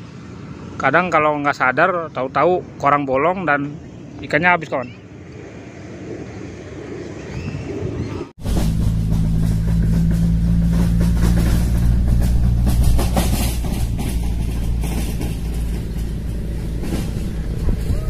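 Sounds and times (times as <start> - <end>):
rough rustling noise: 8.4 - 18.0.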